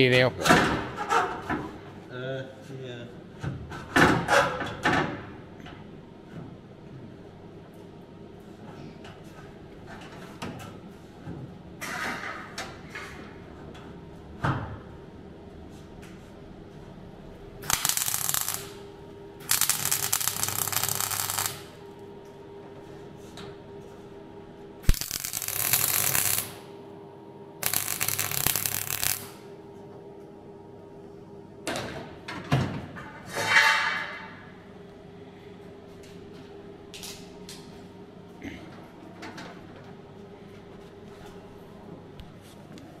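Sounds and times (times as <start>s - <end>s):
steady low hum: 13.2s - 33.1s
welding arc crackle: 17.6s - 21.8s, 24.8s - 26.7s, 27.6s - 29.4s.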